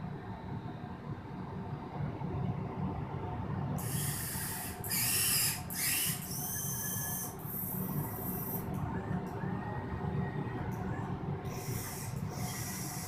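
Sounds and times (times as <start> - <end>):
electric motors whirring: 3.8 - 8.8, 11.4 - 13.0.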